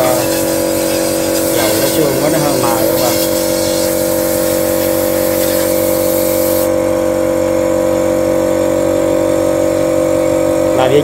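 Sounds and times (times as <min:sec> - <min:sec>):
oil spray hissing: 0:00.0 - 0:06.8
pump motor humming: 0:00.0 - 0:11.0.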